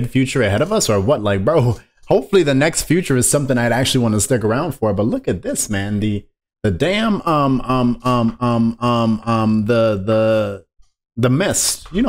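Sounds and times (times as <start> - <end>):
man chanting on one low pitch: 6.7 - 10.6.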